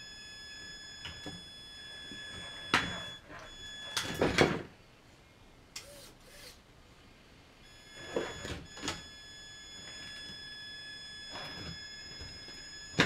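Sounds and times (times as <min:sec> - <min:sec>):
electric motor whine: 0:07.7 - 0:13.0.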